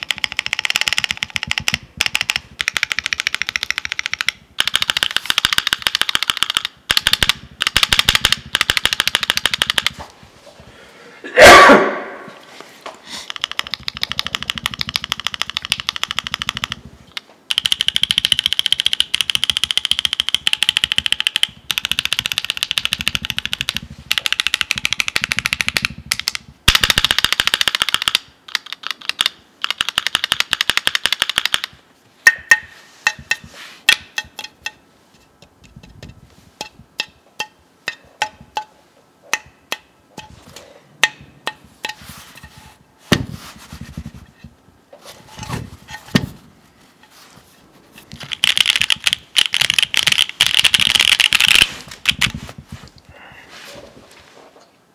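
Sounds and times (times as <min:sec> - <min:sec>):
typing on keyboard: 0:00.0 - 0:09.9, 0:13.3 - 0:16.8, 0:17.5 - 0:31.7, 0:48.3 - 0:52.3.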